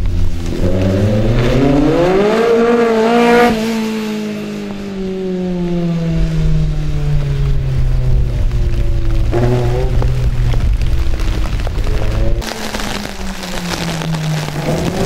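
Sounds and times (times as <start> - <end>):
racing car engine revving: 0.4 - 7.0, 8.9 - 10.7.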